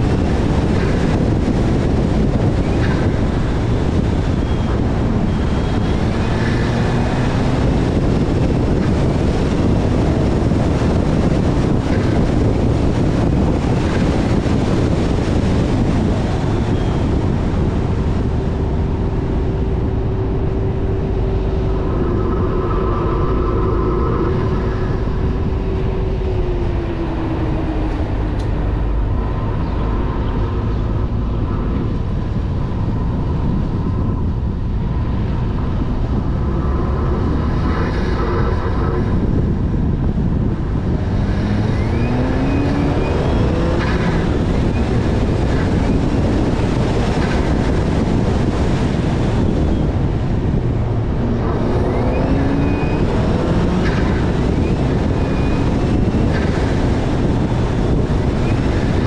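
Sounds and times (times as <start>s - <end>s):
car engine running: 0.0s - 41.1s
wind noise: 0.0s - 59.0s.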